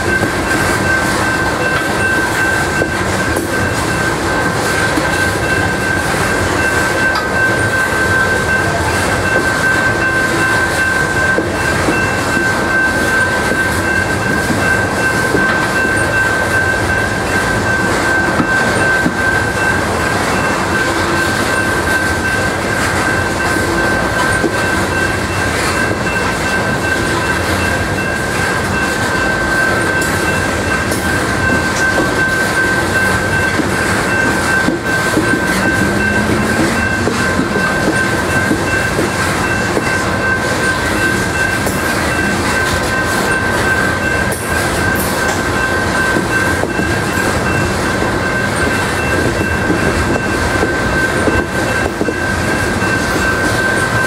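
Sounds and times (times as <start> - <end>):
train wheels clattering on track: 0.0 - 54.0
high-pitched wheel squeal: 31.9 - 40.4.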